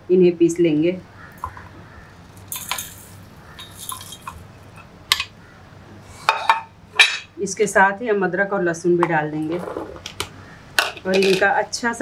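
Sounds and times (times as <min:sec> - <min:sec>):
spices rattling in metal jar: 0:02.3 - 0:05.3.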